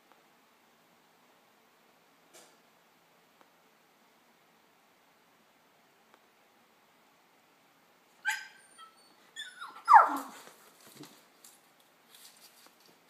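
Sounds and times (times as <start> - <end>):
dog yipping: 8.2 - 10.5
faint scuffling: 10.0 - 13.0.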